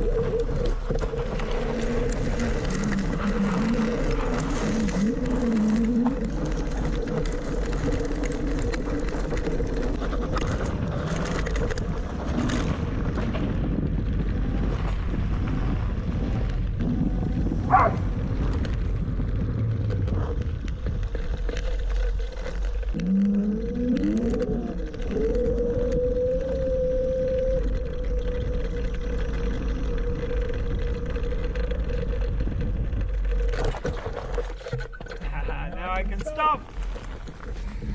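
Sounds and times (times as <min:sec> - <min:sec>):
electric scooter motor whining: 0:00.0 - 0:12.6
wind on microphone: 0:00.0 - 0:21.9, 0:22.9 - 0:35.0
tyres rumbling on dirt road: 0:00.0 - 0:37.9.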